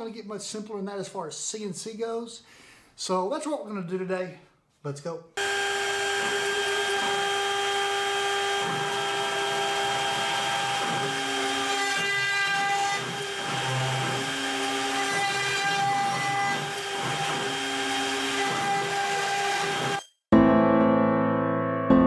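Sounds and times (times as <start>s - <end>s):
router spindle high whine: 5.4s - 20.0s.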